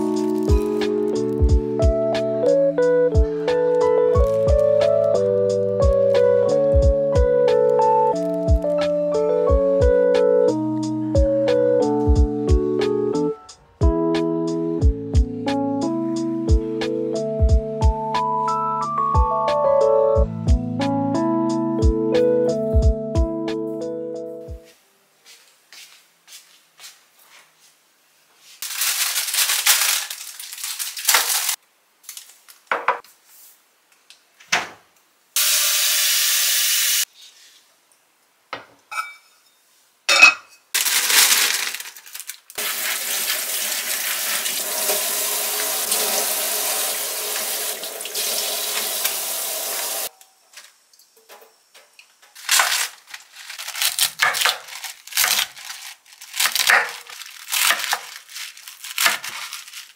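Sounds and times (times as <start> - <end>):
tap running water: 42.6 - 50.1.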